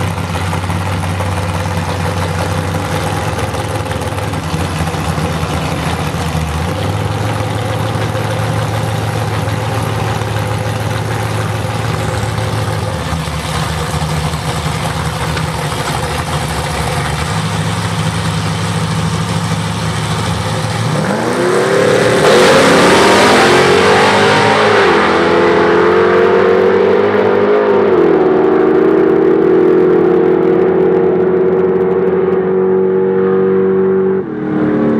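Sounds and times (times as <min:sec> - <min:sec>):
drag racing engines idling: 0:00.0 - 0:25.3
drag racing engines revving: 0:00.0 - 0:34.9.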